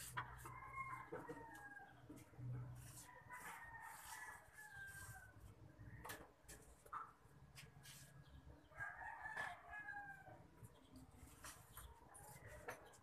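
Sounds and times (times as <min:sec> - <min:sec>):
faint rooster crowing: 0:00.0 - 0:06.3, 0:08.7 - 0:10.5.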